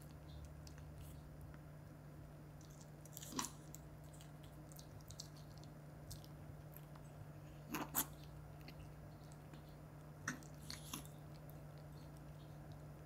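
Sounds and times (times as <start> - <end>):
faint low hum: 0.0 - 13.0
dog crunching cucumber: 2.6 - 8.8.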